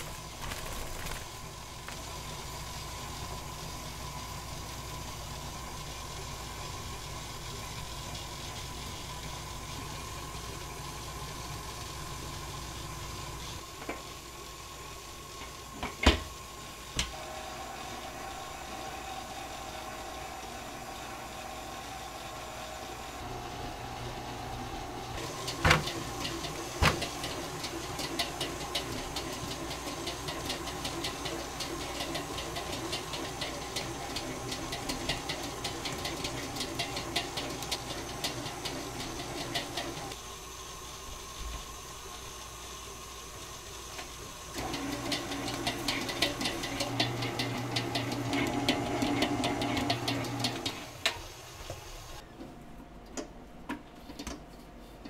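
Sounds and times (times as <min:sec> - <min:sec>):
kitchen machinery humming: 0:00.0 - 0:55.0
utensils knocking: 0:25.2 - 0:40.1, 0:44.6 - 0:50.8.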